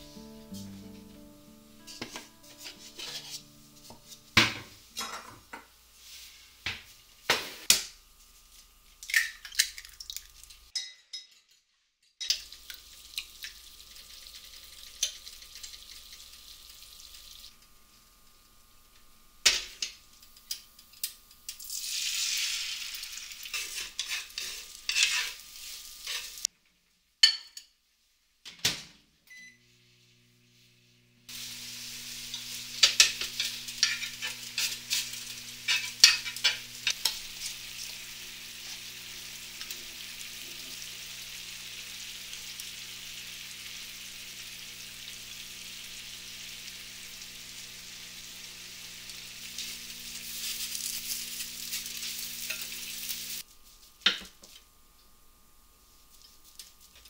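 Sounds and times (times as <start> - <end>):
food sizzling in frying pan: 0.0 - 8.9, 12.2 - 26.5, 31.3 - 53.5
short microwave beep: 29.3 - 29.7.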